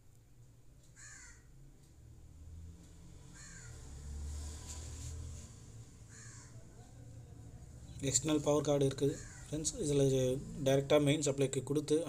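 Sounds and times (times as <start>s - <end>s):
crow cawing: 1.0s - 1.5s, 3.3s - 3.8s, 6.1s - 6.7s, 9.1s - 9.7s.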